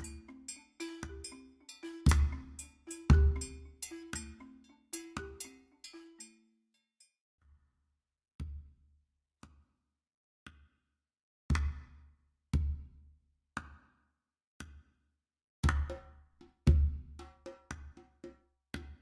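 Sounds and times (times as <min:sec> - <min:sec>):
drum beat with deep bass drum: 0:02.1 - 0:04.2.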